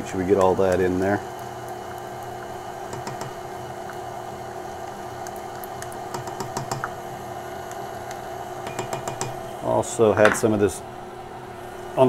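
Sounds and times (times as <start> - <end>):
stand mixer running: 0.0 - 9.6.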